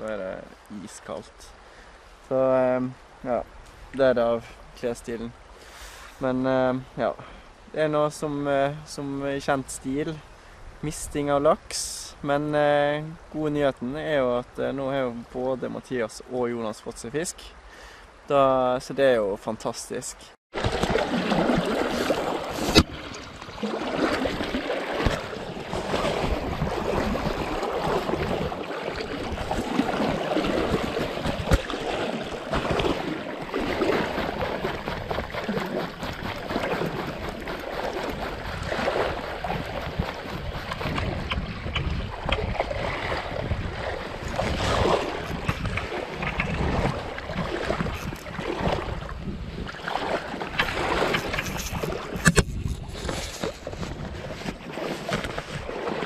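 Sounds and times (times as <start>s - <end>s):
rushing water: 20.5s - 56.0s
wind buffeting microphone: 21.4s - 55.8s.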